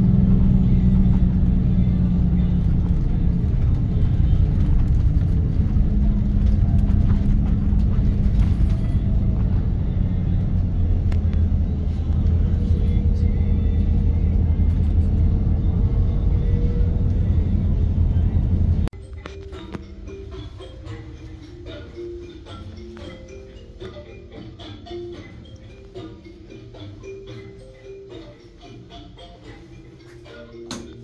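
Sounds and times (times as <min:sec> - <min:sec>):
vehicle engine and road rumble: 0:00.0 - 0:20.6.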